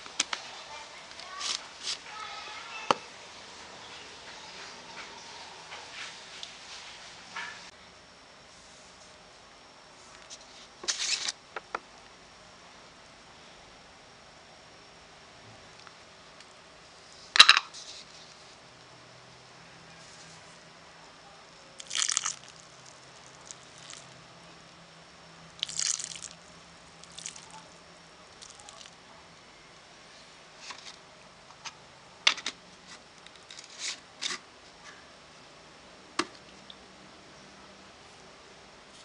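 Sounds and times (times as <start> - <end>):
liquid splashing onto plant: 21.8 - 22.6, 25.6 - 26.4.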